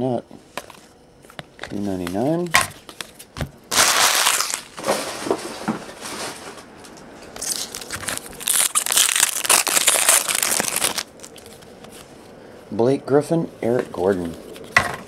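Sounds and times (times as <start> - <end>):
foil wrapper crinkling: 1.7 - 6.7, 7.4 - 11.8.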